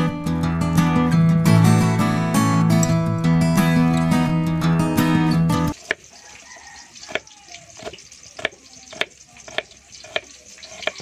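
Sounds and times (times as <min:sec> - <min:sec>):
knife slicing onion on wooden board: 0:07.0 - 0:11.0.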